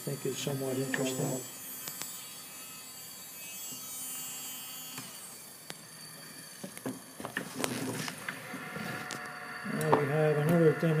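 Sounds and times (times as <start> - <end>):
gyroscope rotor whirring: 0.0 - 11.0.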